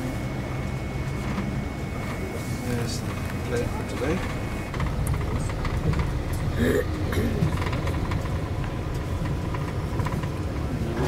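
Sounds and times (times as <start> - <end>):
faint steady whine: 0.0 - 11.0
vehicle engines rumbling: 0.0 - 11.0.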